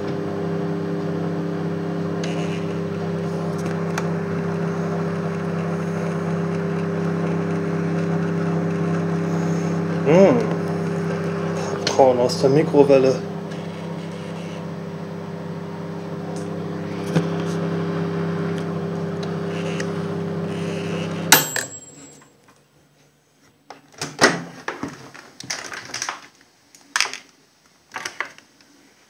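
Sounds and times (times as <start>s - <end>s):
microwave oven humming: 0.0s - 23.2s.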